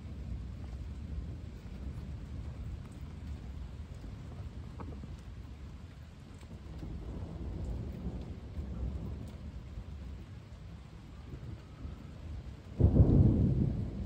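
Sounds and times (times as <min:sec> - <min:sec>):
thunder rumbling: 0:00.0 - 0:14.0
thunder clap: 0:06.5 - 0:14.0.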